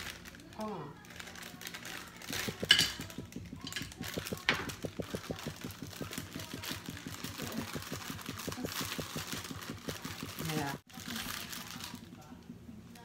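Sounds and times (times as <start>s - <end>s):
plastic bag crinkling: 0.0s - 4.2s, 5.0s - 12.1s
rapid low ticking: 2.3s - 10.8s.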